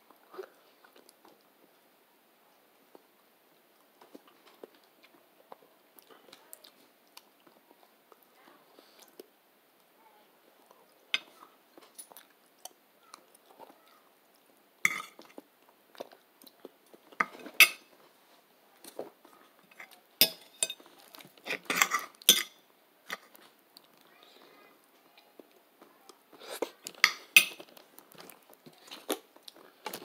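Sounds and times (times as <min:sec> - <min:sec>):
chewing: 0:00.1 - 0:01.8, 0:10.7 - 0:17.6, 0:25.0 - 0:30.0
tableware clinking and clattering: 0:14.9 - 0:15.3, 0:17.2 - 0:18.0, 0:19.7 - 0:23.3, 0:26.9 - 0:27.7.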